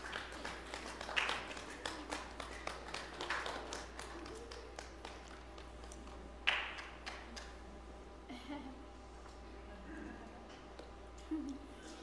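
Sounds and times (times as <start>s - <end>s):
people clapping: 0.0s - 7.7s.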